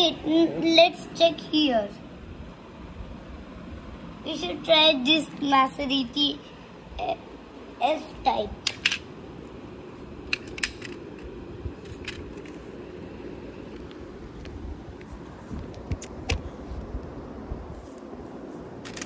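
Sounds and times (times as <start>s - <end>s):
toy cars clicking and knocking: 8.6s - 9.0s, 10.3s - 12.6s.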